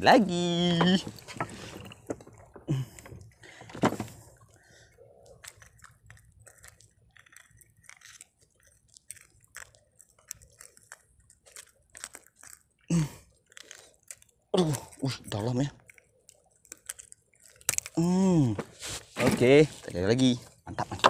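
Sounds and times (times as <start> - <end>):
handling clicks and crackles: 5.2 - 18.0.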